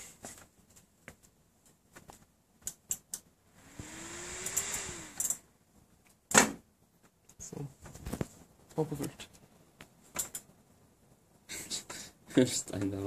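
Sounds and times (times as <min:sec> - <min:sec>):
fan spinning with motor hum: 0:03.2 - 0:05.8.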